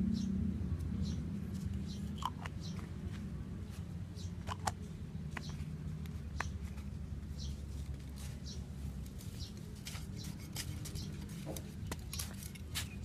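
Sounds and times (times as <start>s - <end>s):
small bird chirping: 0.0s - 3.2s, 4.1s - 11.4s
trowel scraping dry soil: 7.6s - 13.0s.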